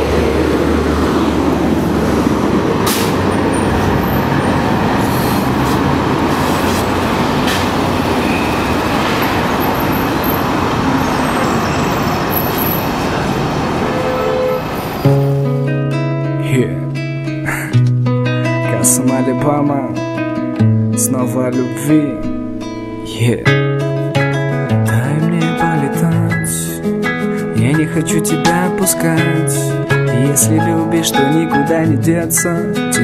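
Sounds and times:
vehicle rumbling: 0.0s - 15.7s.

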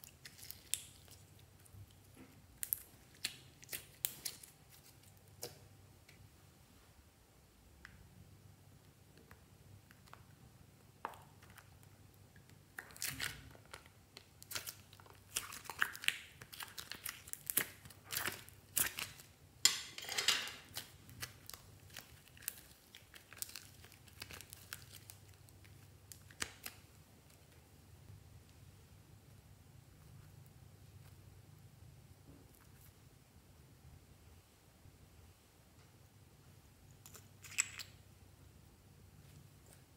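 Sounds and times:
crinkling and tearing: 2.6s - 5.6s, 12.8s - 19.3s, 20.5s - 27.6s.

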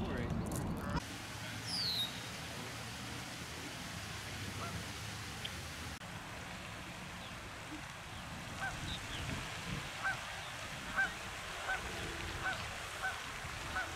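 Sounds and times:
fountain water rushing: 0.5s - 13.9s
goose honking: 4.6s - 4.8s, 10.0s - 10.3s, 10.9s - 13.9s.

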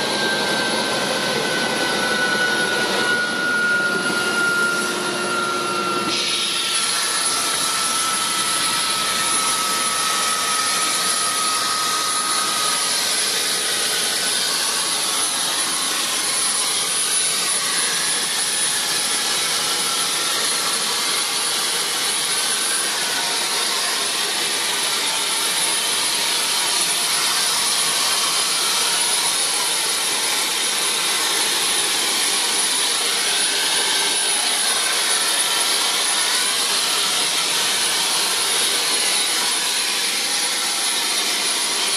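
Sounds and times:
helicopter turbine whine: 0.0s - 41.9s.

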